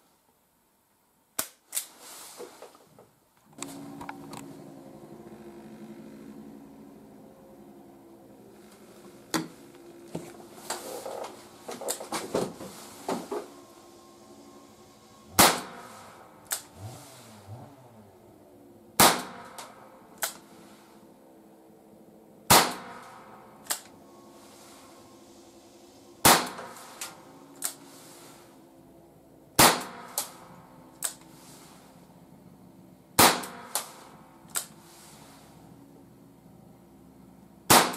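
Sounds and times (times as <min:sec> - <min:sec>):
revolver shots: 0:15.4 - 0:16.7, 0:22.5 - 0:23.2, 0:26.2 - 0:27.1.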